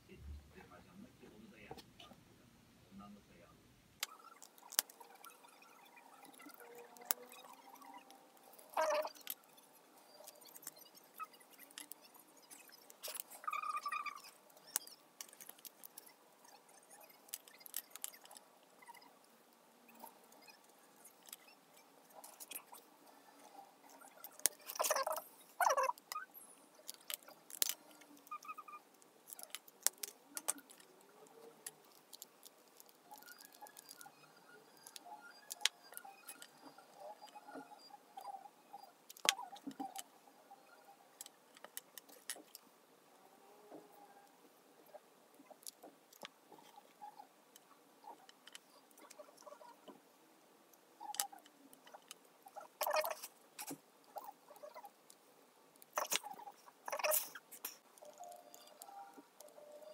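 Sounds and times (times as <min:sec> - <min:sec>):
scissors cutting wooden sticks: 0:10.2 - 0:16.1, 0:16.9 - 0:18.4, 0:26.8 - 0:28.5, 0:29.3 - 0:34.1.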